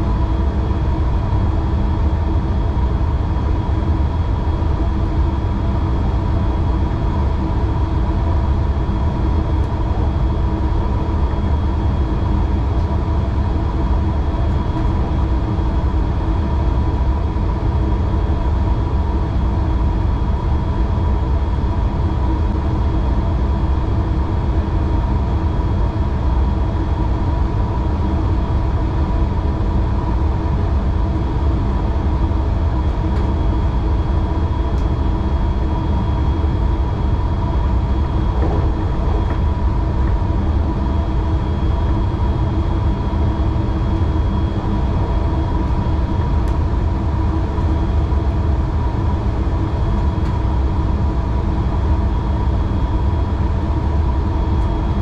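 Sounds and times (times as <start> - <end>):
steady whining tones: 34.9 - 49.6
train rumbling on rails: 37.6 - 42.1.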